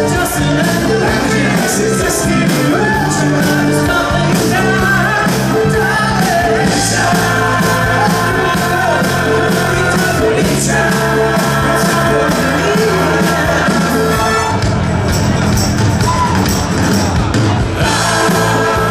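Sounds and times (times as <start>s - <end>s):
man singing into microphone: 0.0s - 14.4s
live rock band playing: 0.0s - 18.9s
steady drum beat: 0.0s - 18.9s.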